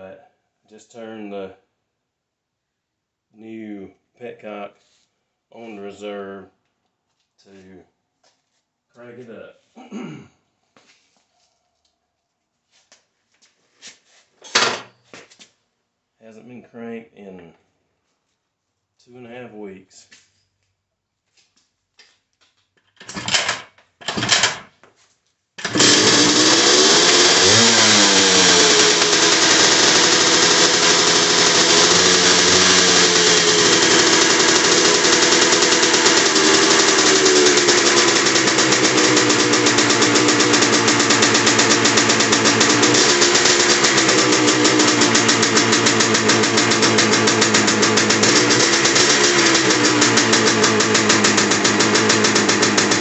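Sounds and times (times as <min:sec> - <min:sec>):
two-stroke engine revving: 0:25.6 - 0:53.0.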